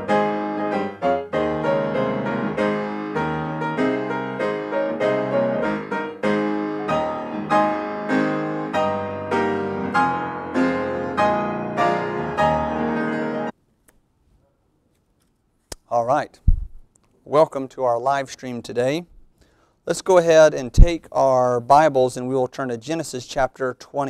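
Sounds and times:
gentle piano music: 0.0 - 13.5.

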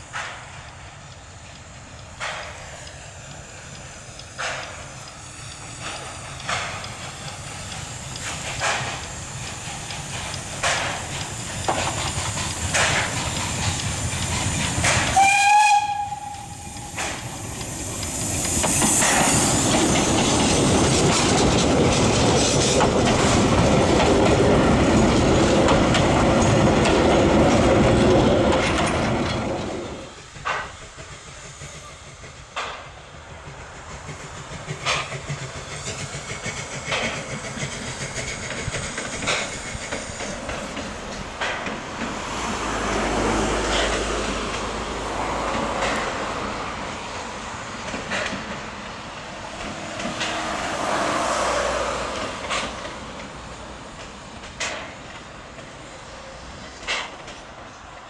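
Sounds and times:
clattering train wheels: 0.0 - 58.0
rush of steam: 0.0 - 58.0
steam locomotive exhaust beats: 0.0 - 58.0
steam whistle blast: 15.1 - 17.2.

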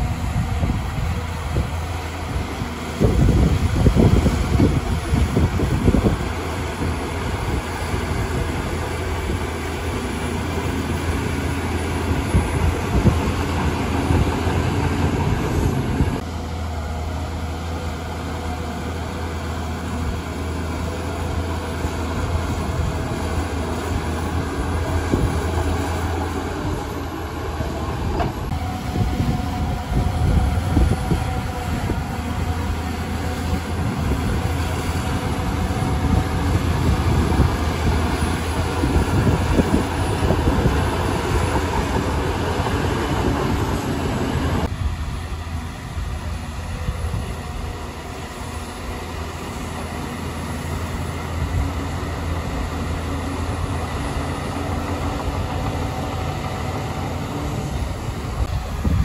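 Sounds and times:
diesel engine running hard: 0.0 - 59.0
steel tracks clattering: 0.9 - 16.2, 16.8 - 59.0.

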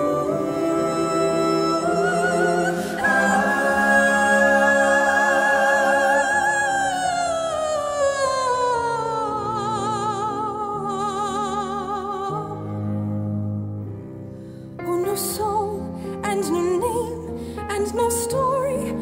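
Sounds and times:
soprano singing operatic line: 0.0 - 12.6
soft sustained accompaniment: 0.0 - 19.0.

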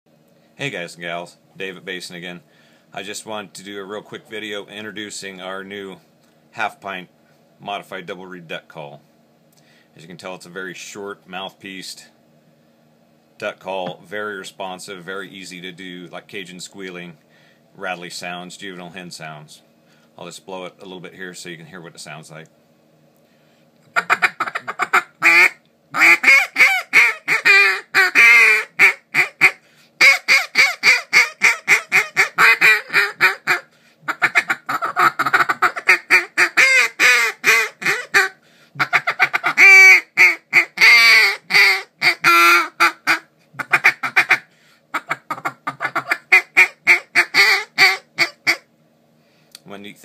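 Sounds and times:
duck call raspy quacks: 23.9 - 48.6.

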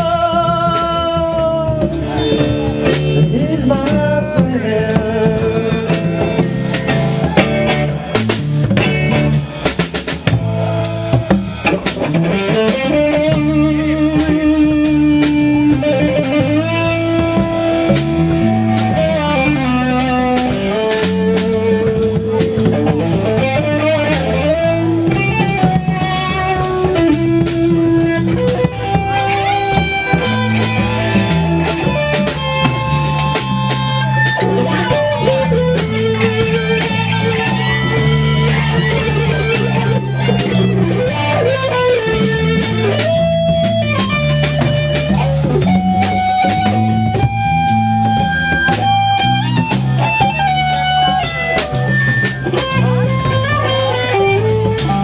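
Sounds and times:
drum kit: 0.0 - 55.0
electric guitars: 0.0 - 55.0
walking bass line: 0.0 - 55.0.

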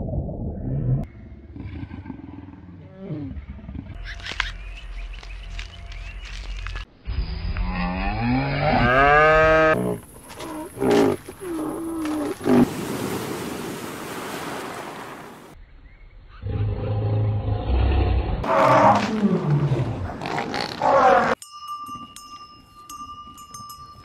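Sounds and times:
rushing sea water: 12.3 - 15.6.

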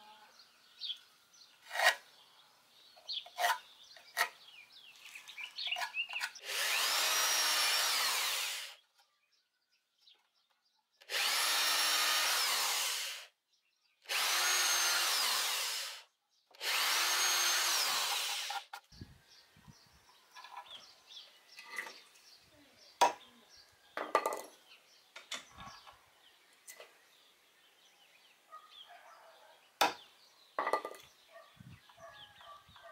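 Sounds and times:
electric drill boring into wood: 6.2 - 8.8, 11.0 - 13.3, 14.0 - 18.8.

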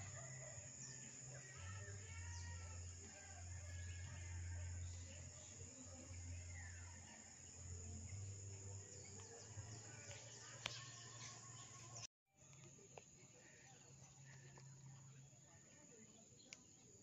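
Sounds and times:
high insect drone: 0.0 - 17.0.

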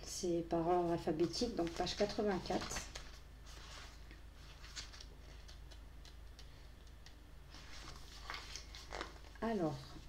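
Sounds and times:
paper pages flicking: 4.5 - 9.2.

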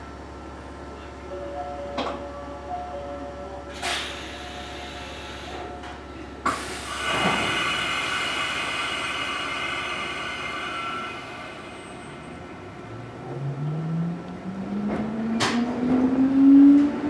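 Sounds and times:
compressed air hiss: 6.5 - 11.8.

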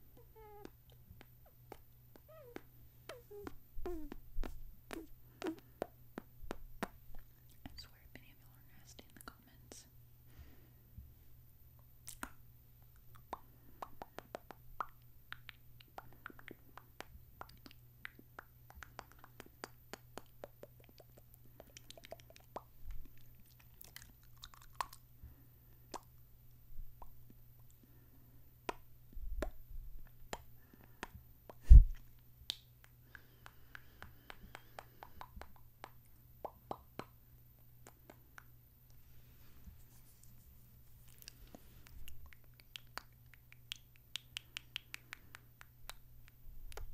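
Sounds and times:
wet kisses and lip smacks: 14.1 - 25.0, 41.0 - 46.9.

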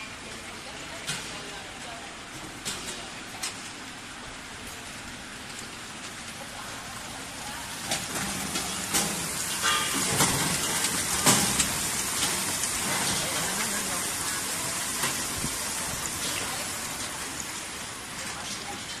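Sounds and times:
hot oil sizzling: 4.7 - 19.0.

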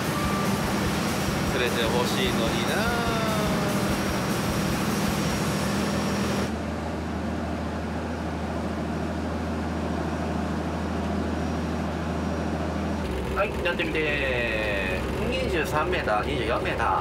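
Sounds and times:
boat engine humming: 0.0 - 17.0.

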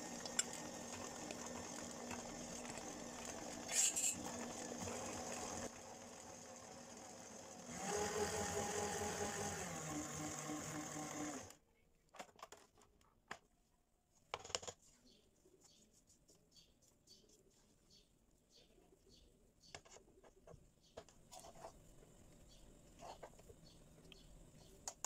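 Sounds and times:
stand mixer motor running: 0.0 - 11.5
spatula scraping a bowl: 1.0 - 4.3.

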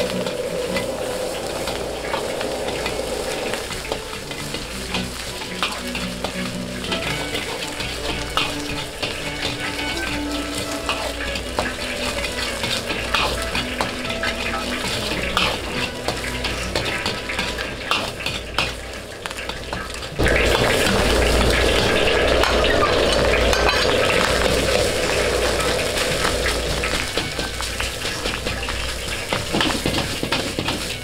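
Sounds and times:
metal spatula scraping a wok: 0.0 - 31.0
rice sizzling in a wok: 0.0 - 31.0.

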